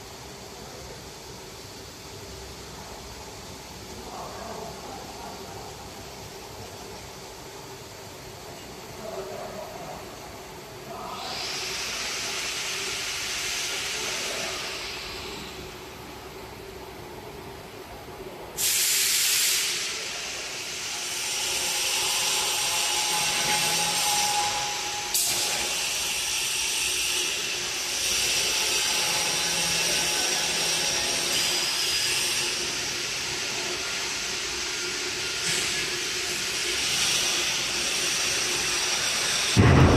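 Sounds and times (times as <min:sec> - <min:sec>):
hydraulic hiss: 0:10.9 - 0:16.0, 0:18.6 - 0:39.9.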